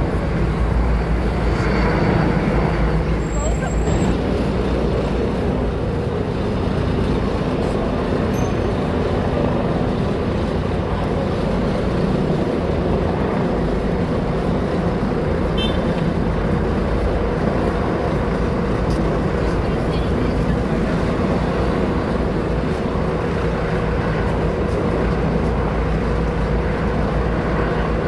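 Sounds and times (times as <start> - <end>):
city street traffic: 0.0 - 28.0
helicopter flying overhead: 0.0 - 28.0.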